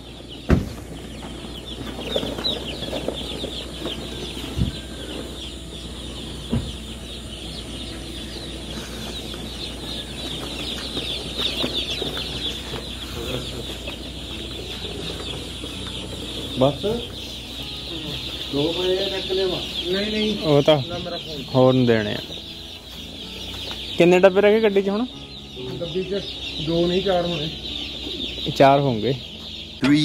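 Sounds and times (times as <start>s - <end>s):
chicks peeping: 0.0s - 30.0s
dull knocks: 0.4s - 4.9s, 6.5s - 7.0s.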